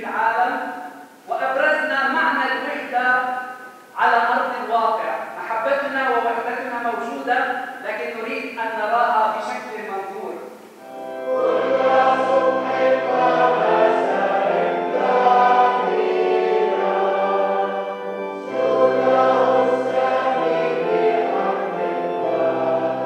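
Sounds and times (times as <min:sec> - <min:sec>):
congregation singing a hymn: 0:10.8 - 0:23.0.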